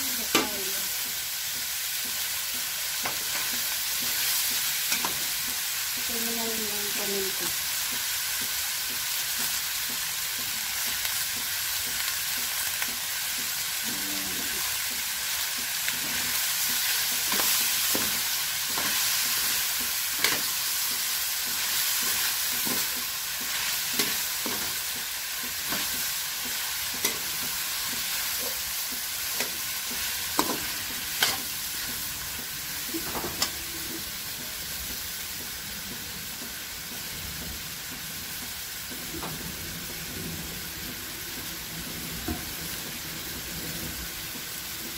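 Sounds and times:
food sizzling in a wok: 0.0 - 44.9
spatula knocking on wok: 7.5 - 14.0, 14.6 - 43.5.

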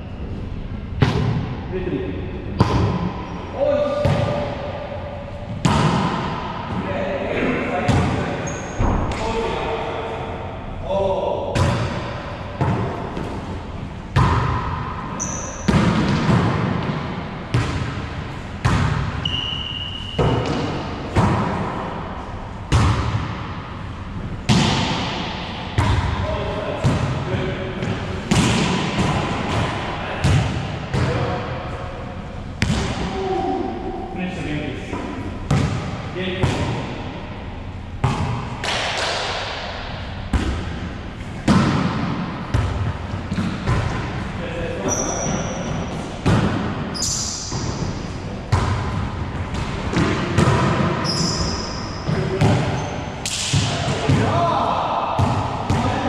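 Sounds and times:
ball thumping with echo: 1.0 - 1.6, 2.5 - 6.9, 7.7 - 9.5, 11.5 - 31.7, 32.4 - 33.6, 34.9 - 56.0
ball rebounding off walls: 47.5 - 54.4.

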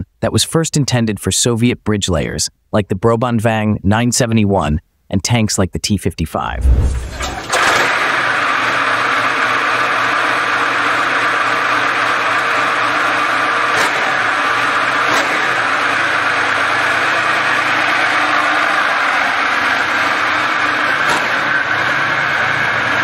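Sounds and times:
diesel engine running steadily: 6.6 - 23.0.

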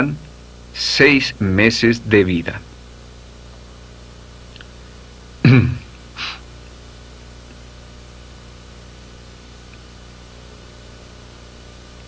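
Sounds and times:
low steady hum: 0.0 - 12.0
man's voiced sound: 0.8 - 2.6
short breath: 6.2 - 6.4.

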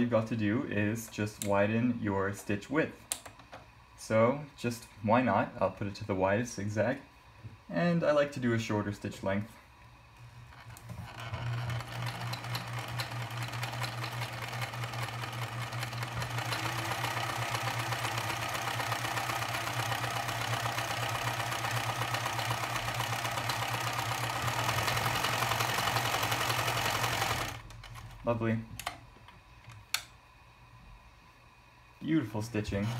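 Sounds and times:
sewing machine running: 10.7 - 28.2.

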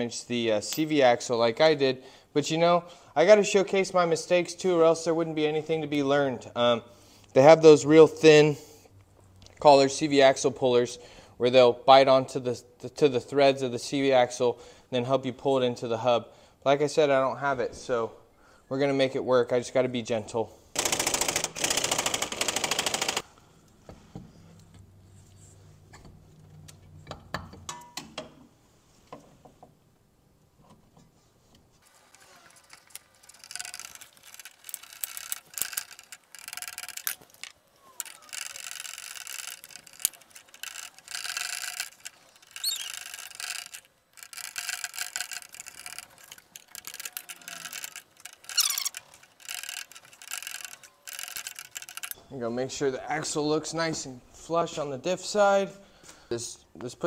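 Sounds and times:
ratchet wrench clicking: 20.8 - 23.2, 32.2 - 52.2.

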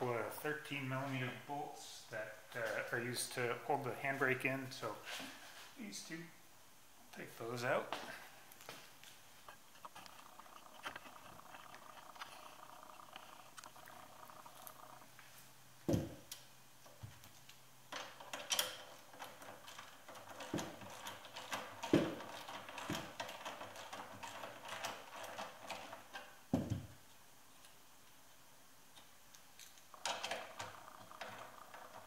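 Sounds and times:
thumps: 15.8 - 16.3.

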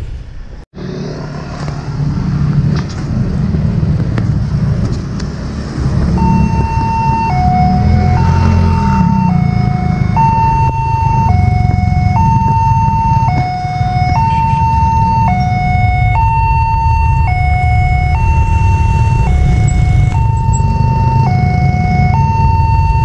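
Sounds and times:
two-tone crossing alarm: 6.0 - 23.0
steady low rumble: 14.9 - 23.0.

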